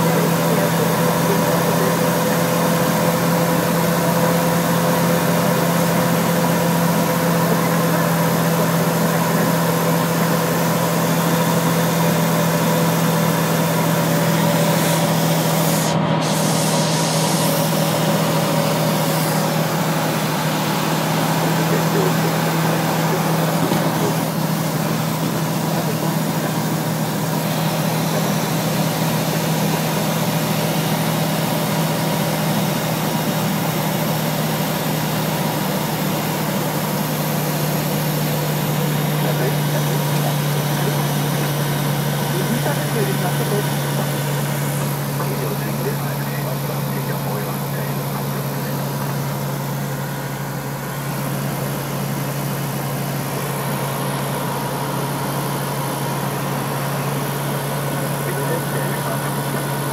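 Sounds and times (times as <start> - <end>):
aircraft engine and propeller drone: 0.0 - 59.9
airflow noise: 0.0 - 59.9.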